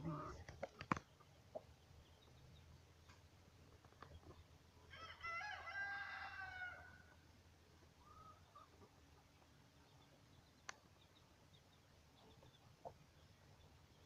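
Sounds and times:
rooster crowing: 4.9s - 7.1s.

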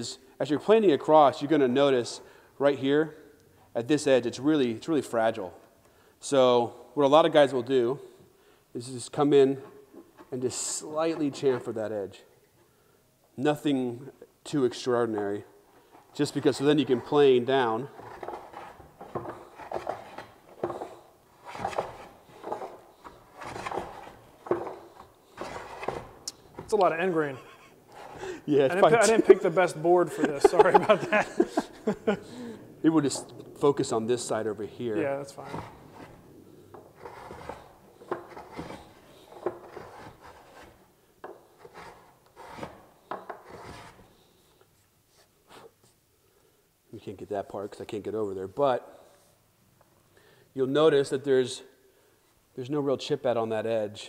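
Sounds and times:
block plane strokes on wood: 16.3s - 26.9s, 35.4s - 44.2s.

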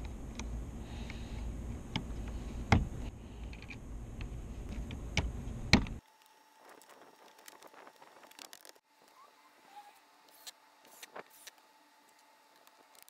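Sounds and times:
steady low rumble: 0.0s - 6.0s.

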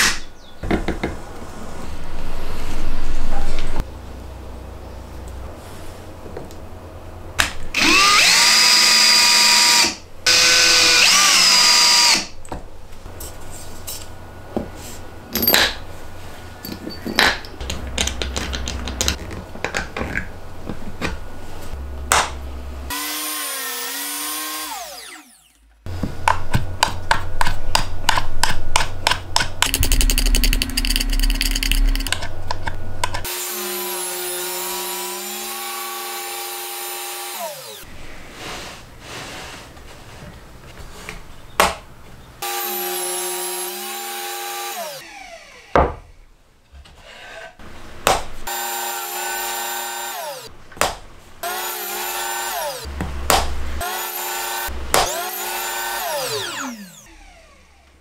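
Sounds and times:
table saw cutting plywood: 22.9s - 25.7s, 33.2s - 37.9s, 42.4s - 45.7s, 48.5s - 50.5s, 51.4s - 53.0s, 53.8s - 57.8s
cordless drill driving screws: 53.8s - 57.6s.

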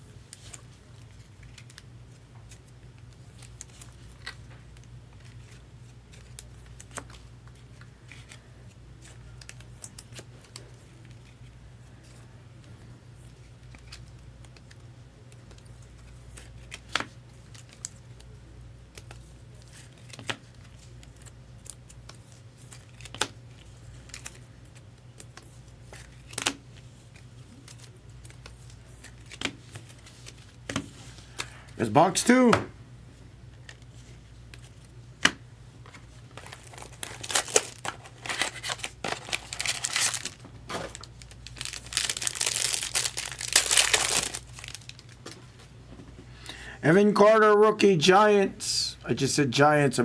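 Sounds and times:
low steady hum: 0.0s - 50.0s.

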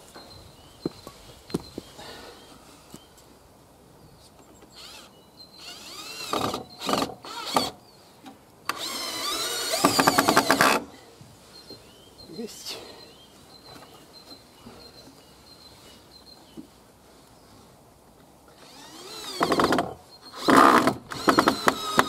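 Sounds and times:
cordless drill driving screws: 4.8s - 7.8s, 8.7s - 10.9s, 18.6s - 22.0s.

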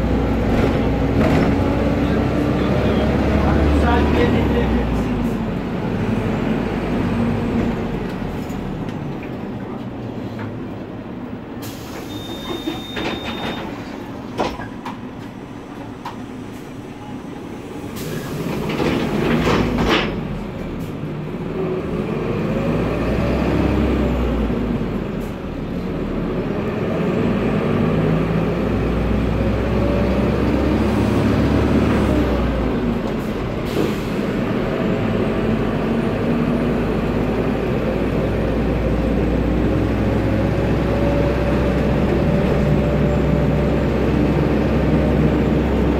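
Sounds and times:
bus diesel engine running: 0.0s - 45.9s
pneumatic brake air hisses: 11.6s - 12.8s.

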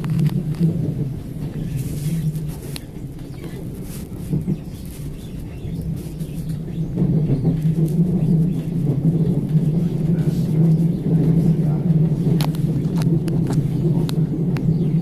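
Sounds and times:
train hum and rumble: 0.0s - 15.0s.

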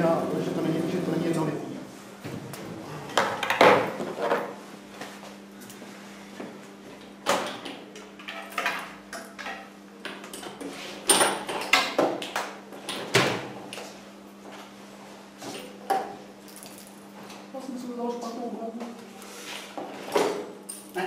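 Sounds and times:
low electrical hum: 0.0s - 21.0s.

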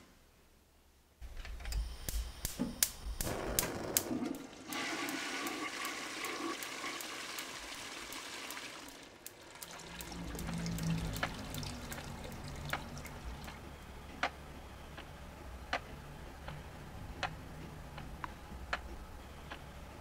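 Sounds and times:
running water rushing: 3.7s - 13.6s.

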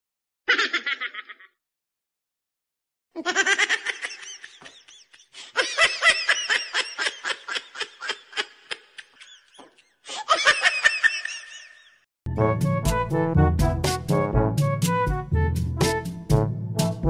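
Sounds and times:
rapid cackling laugh: 0.5s - 1.6s, 3.2s - 12.0s.

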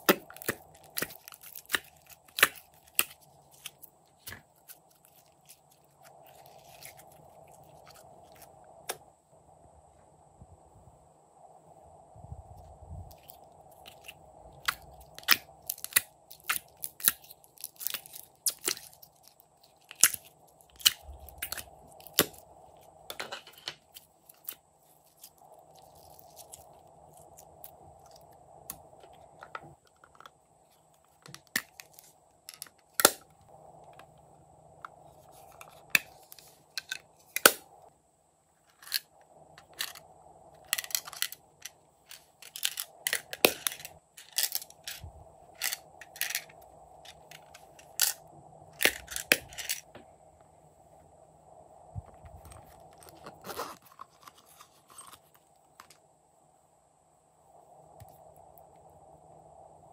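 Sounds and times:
frozen slime crackling: 0.0s - 8.4s, 13.1s - 22.4s.

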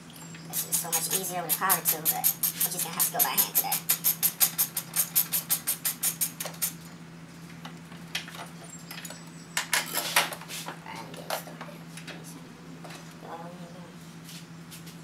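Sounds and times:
hand ratchet clicking: 0.6s - 6.8s
metallic clinks and rattles: 8.2s - 10.1s.

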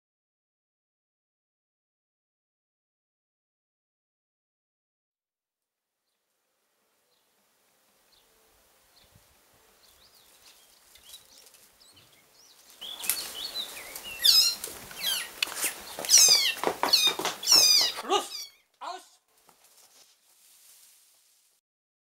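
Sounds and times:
frog screaming: 16.1s - 19.0s.

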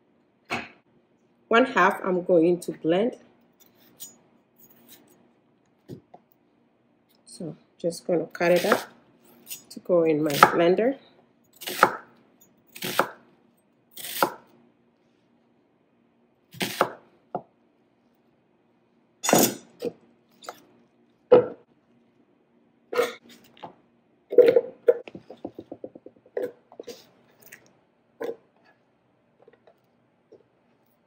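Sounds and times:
knife chopping on cutting board: 11.6s - 12.1s, 12.8s - 13.2s, 14.0s - 14.4s, 16.6s - 17.0s.

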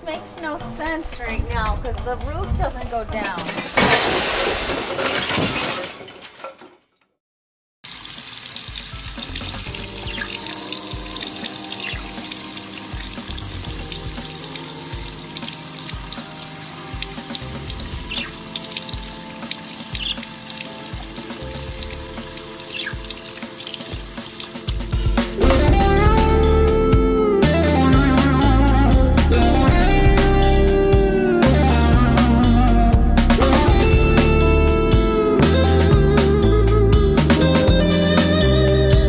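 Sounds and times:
light background music: 0.0s - 3.8s, 8.6s - 39.0s
faucet running into sink: 7.9s - 25.1s.

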